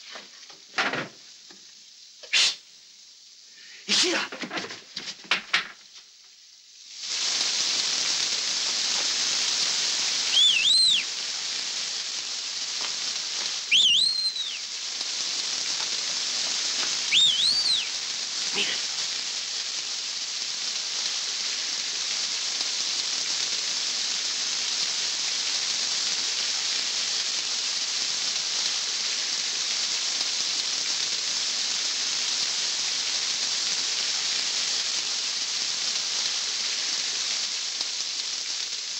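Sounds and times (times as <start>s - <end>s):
steady rain falling: 0.0s - 38.9s
short rising and falling whistles: 10.1s - 11.2s, 13.6s - 14.8s, 17.0s - 18.0s.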